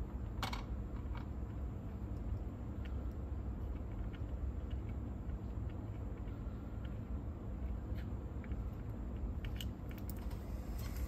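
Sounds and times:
cassette deck tape transport hum: 0:00.0 - 0:11.0.

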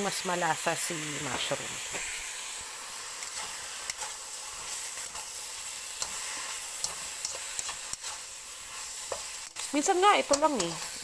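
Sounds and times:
mushrooms sizzling in oil: 0:00.0 - 0:11.0
spatula scraping and knocking pan: 0:03.1 - 0:11.0.

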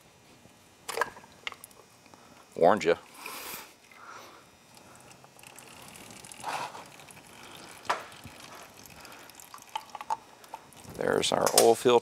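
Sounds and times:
oil trickling: 0:04.7 - 0:11.4.

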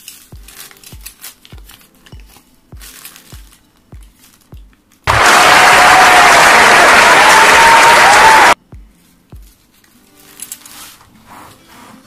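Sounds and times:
plastic bag crinkling: 0:00.0 - 0:04.6
audience applause and cheering: 0:05.1 - 0:08.6
music with kick-drum beat: 0:08.6 - 0:09.6.

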